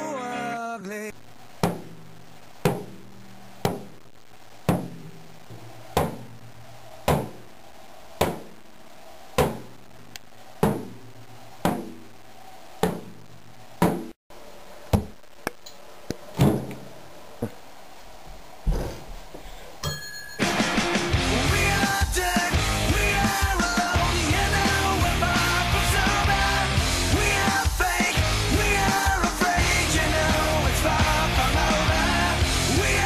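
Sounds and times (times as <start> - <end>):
drum struck with a stick: 1.6 - 2.0, 2.6 - 4.0, 4.7 - 6.4, 7.1 - 7.5, 8.2 - 8.6, 9.4 - 9.8, 10.6 - 11.0.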